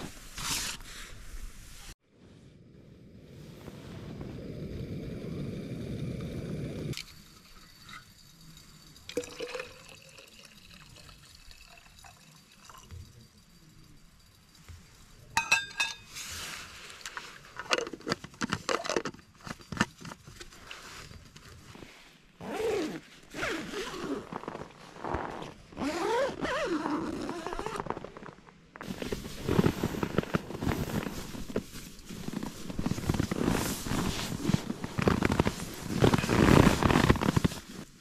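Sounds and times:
camping gear rustling and knocking: 15.4s - 38.0s.

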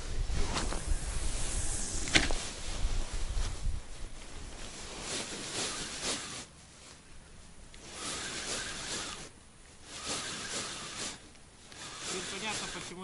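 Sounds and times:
spinning reel cranking: 7.8s - 9.3s, 9.9s - 13.0s.

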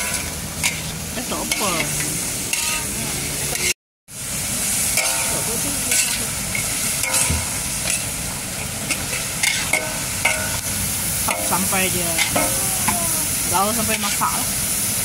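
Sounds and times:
metal spatula scraping a pan: 0.0s - 1.9s, 2.5s - 3.8s, 5.0s - 6.3s, 7.0s - 8.1s, 8.9s - 10.6s
leaves sizzling in a wok: 0.0s - 15.0s.

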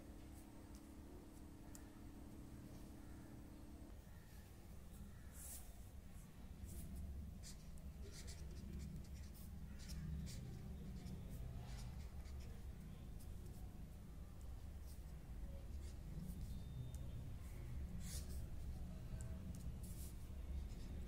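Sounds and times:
pen scratching on paper: 6.7s - 13.6s, 19.4s - 21.0s.

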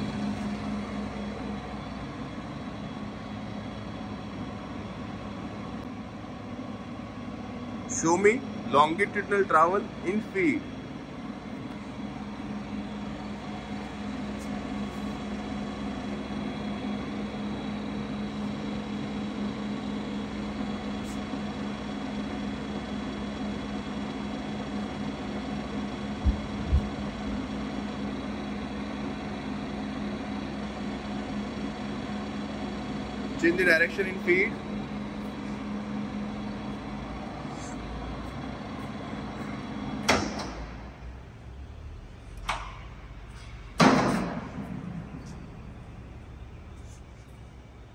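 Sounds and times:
lathe motor humming: 0.0s - 40.1s
sharp metallic clunk: 40.0s - 40.8s, 42.4s - 45.2s.

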